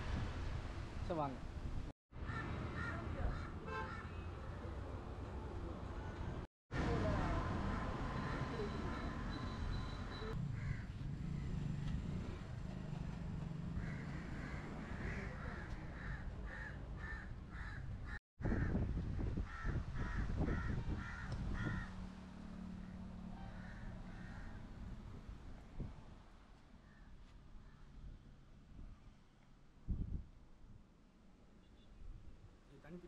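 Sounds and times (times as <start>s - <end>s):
crow cawing: 2.2s - 4.2s, 10.6s - 10.9s, 13.8s - 18.8s, 19.5s - 21.9s, 23.3s - 24.6s
wind rumble: 17.9s - 22.2s.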